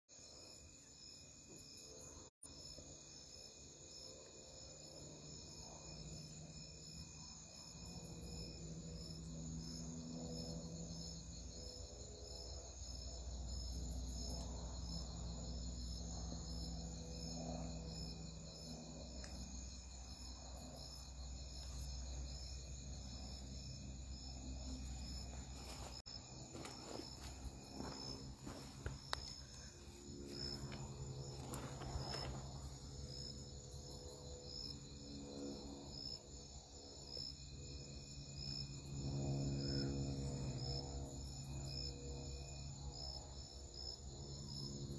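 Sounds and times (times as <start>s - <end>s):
crickets chirping: 0.1s - 44.9s
scuffs and knocks: 25.3s - 29.4s.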